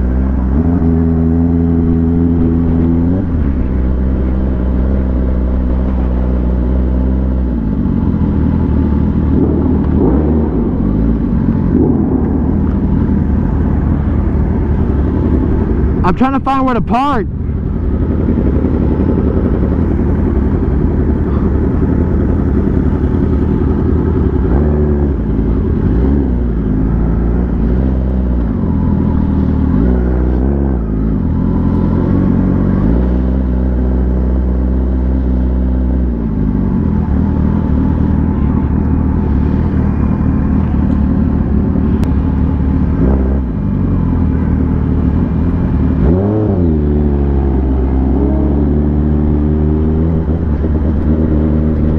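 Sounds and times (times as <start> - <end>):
motorcycle engine revving: 0.0 - 51.9.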